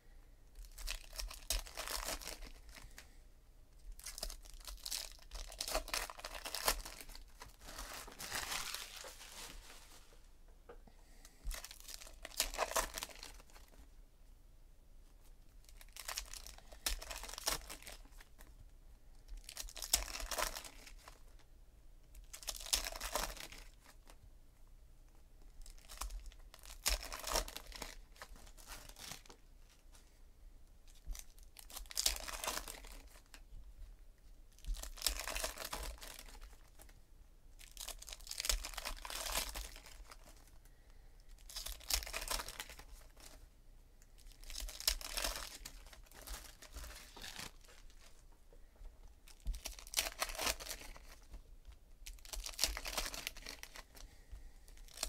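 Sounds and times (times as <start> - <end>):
wrappers crinkling: 0.6 - 3.1, 3.9 - 10.2, 11.4 - 13.8, 15.6 - 18.5, 19.3 - 21.3, 22.2 - 24.2, 25.6 - 30.0, 30.9 - 33.4, 34.5 - 36.9, 37.6 - 40.6, 41.3 - 43.4, 44.1 - 48.3, 49.2 - 55.0
foil packs tearing: 4.0 - 9.8, 44.3 - 47.9, 52.2 - 53.8.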